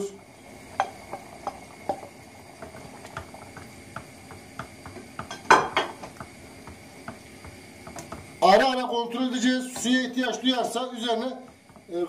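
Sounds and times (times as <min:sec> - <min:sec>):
stew bubbling with small pops: 0:00.2 - 0:08.4, 0:11.4 - 0:11.9
wooden spoon stirring: 0:00.7 - 0:08.7, 0:09.4 - 0:12.0.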